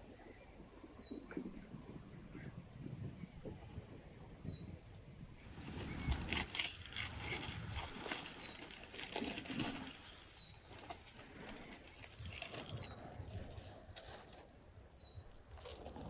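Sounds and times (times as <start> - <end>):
aluminium foil crinkling: 5.6 - 14.5, 15.5 - 16.0.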